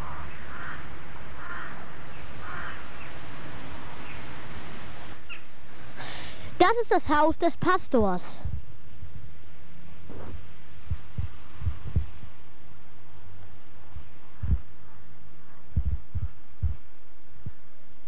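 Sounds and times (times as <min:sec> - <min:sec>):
low electrical hum: 0:00.0 - 0:18.0
dull thumps on microphone: 0:10.1 - 0:12.1, 0:15.7 - 0:17.6.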